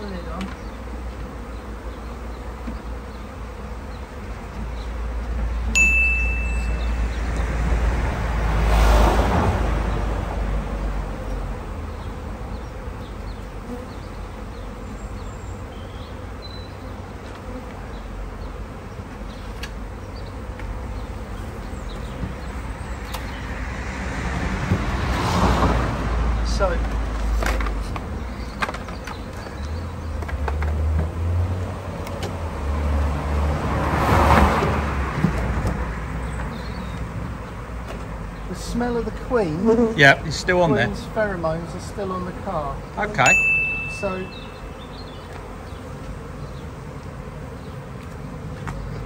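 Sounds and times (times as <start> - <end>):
bee swarm buzzing: 0.0 - 49.0
high bright ding: 5.8 - 6.9, 43.2 - 44.6.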